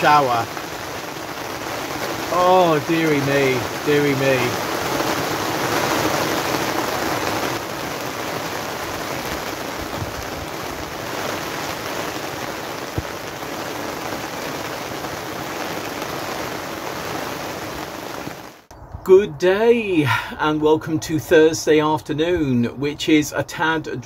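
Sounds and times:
rain drumming on plastic cover: 0.0 - 18.7.

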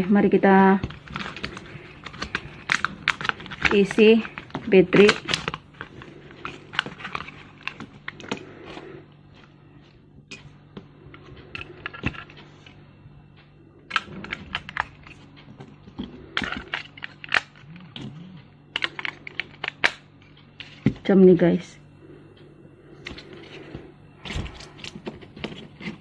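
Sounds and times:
batteries clicking into plastic: 18.7 - 20.0.

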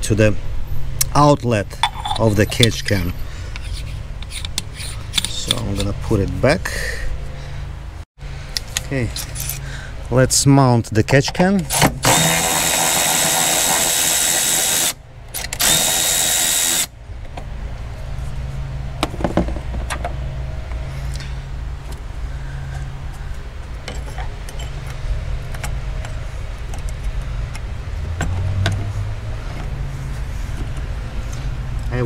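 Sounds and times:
cordless ratchet motor whir: 11.8 - 16.9.

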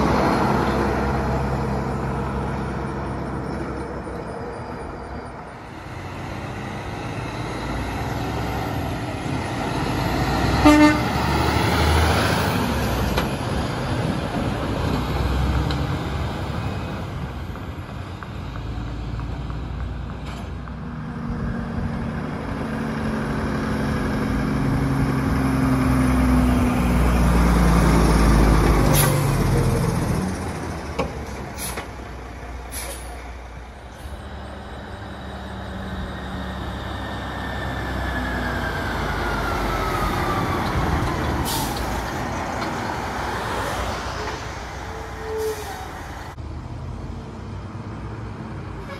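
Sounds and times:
diesel trucks passing: 0.0 - 48.9
short loud horn toot: 10.6 - 11.2.

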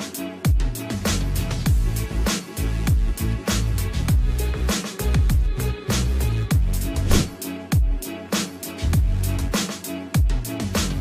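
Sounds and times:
crisp hi-hats: 0.0 - 11.0
electronic kick drums: 0.5 - 0.8, 1.7 - 2.0, 2.9 - 3.2, 4.1 - 4.4, 5.2 - 5.6, 6.5 - 8.0, 9.0 - 9.2, 10.2 - 10.5.

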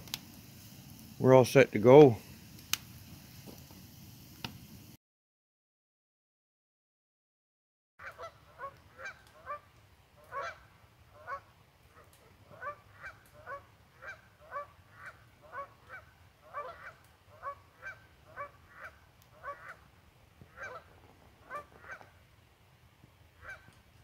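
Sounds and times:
geese honking: 8.0 - 22.2, 23.4 - 23.7.

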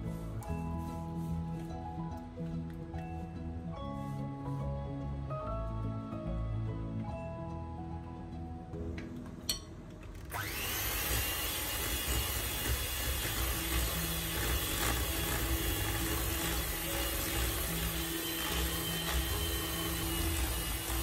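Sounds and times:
electric mixer running: 10.3 - 21.0.

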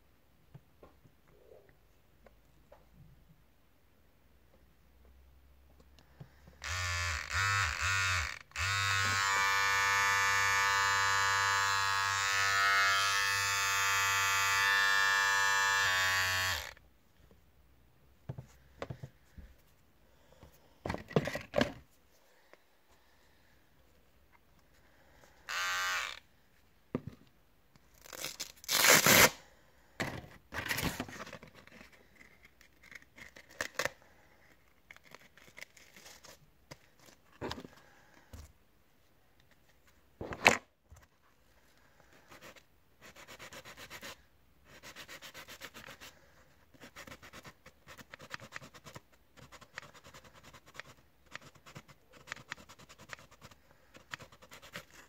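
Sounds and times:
sandpaper rubbing and scraping: 42.3 - 46.1.

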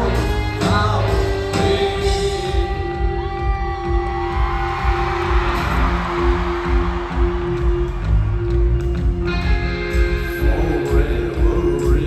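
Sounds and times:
person singing: 0.0 - 3.1, 9.9 - 12.0
live rock band playing: 0.0 - 12.0.

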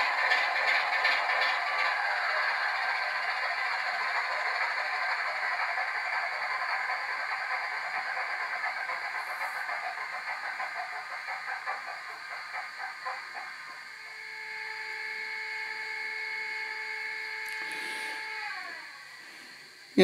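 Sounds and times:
diesel engine sound through small speaker: 0.0 - 15.6.

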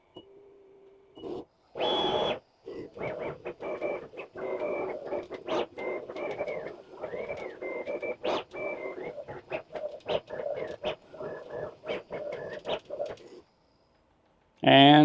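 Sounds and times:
stepper motors chirping: 1.2 - 13.5
sharp clicks: 1.8 - 13.4.

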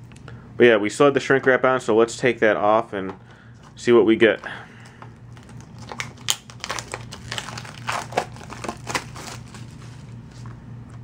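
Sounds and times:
plastic wrap crinkling: 4.8 - 10.6.

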